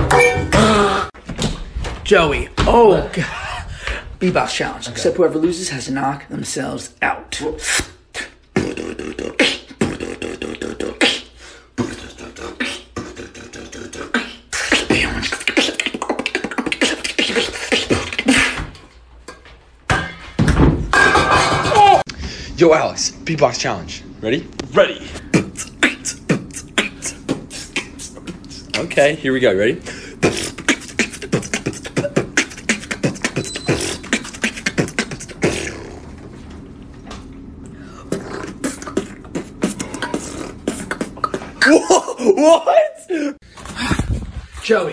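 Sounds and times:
person beatboxing: 0:07.5 - 0:18.8, 0:25.1 - 0:28.9, 0:29.9 - 0:36.1, 0:38.0 - 0:41.8.

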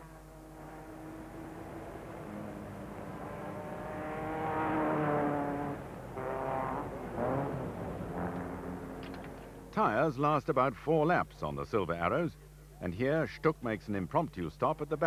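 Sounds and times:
racing car engines passing: 0:00.0 - 0:09.7.

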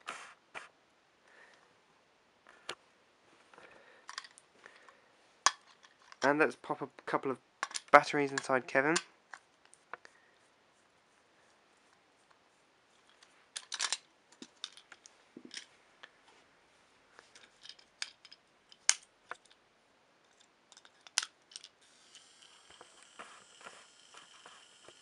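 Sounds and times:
toy motor whirring: 0:21.8 - 0:25.0.

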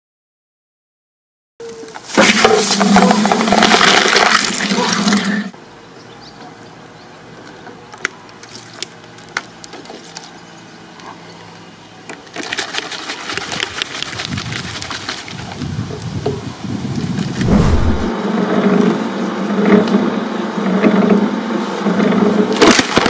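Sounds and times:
shredder crushing can: 0:02.1 - 0:05.4, 0:22.6 - 0:23.0.

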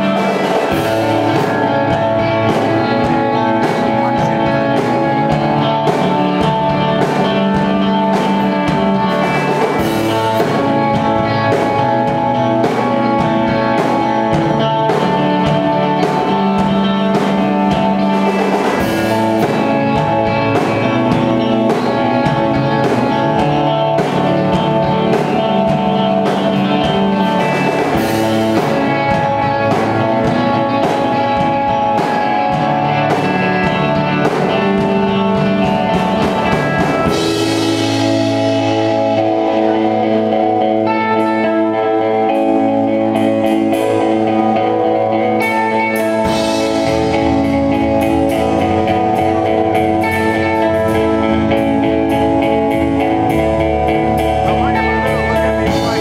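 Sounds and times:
drum kit: 0:00.0 - 0:56.0
electric guitar held notes: 0:00.0 - 0:56.0.

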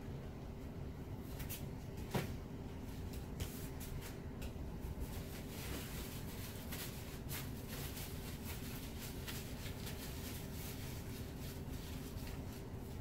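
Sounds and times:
low hum and hiss: 0:00.0 - 0:13.0.

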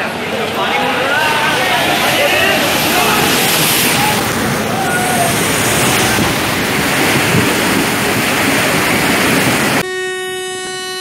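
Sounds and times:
train rushing through floodwater: 0:00.0 - 0:10.8
locomotive horn blast: 0:09.6 - 0:11.0.

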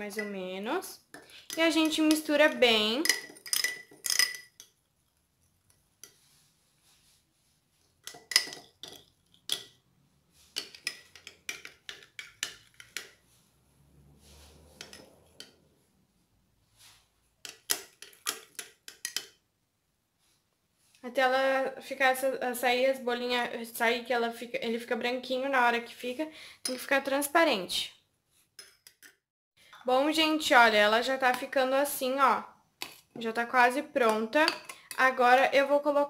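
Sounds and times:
spoon clinking in glass jar: 0:01.2 - 0:04.8, 0:08.0 - 0:09.8, 0:10.6 - 0:13.1.

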